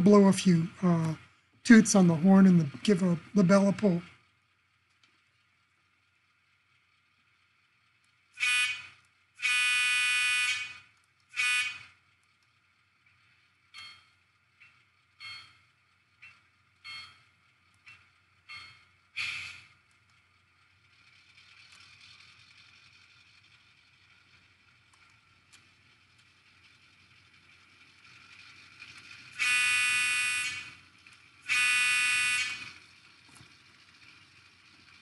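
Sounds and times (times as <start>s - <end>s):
diesel engine running quietly: 0.0s - 35.0s
horn toots: 8.4s - 10.7s, 11.4s - 11.9s, 29.4s - 30.6s, 31.5s - 32.6s.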